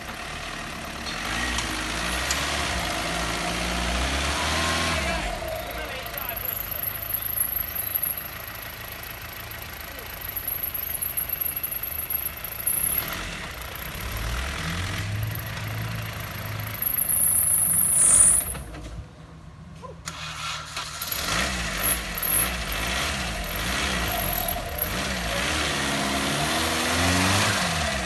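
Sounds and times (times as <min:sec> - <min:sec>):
buggy engine revving: 0:00.0 - 0:19.0, 0:20.0 - 0:28.0.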